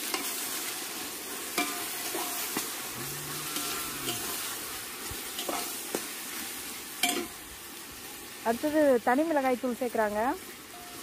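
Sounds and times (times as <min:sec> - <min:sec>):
vegetables sizzling in hot oil: 0:00.0 - 0:11.0
metal ladle scraping pot: 0:01.5 - 0:06.0.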